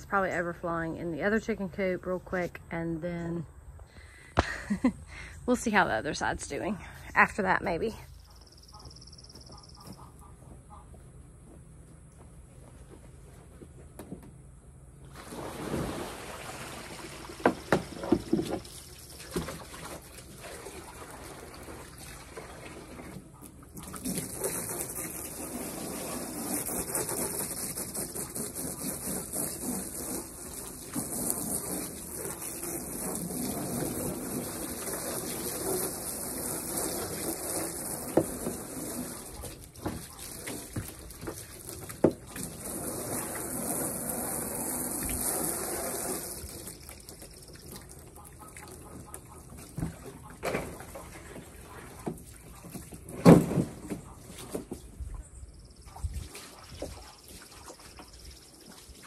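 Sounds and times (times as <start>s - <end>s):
hose spraying water into tub: 15.0s - 55.0s, 55.6s - 59.0s.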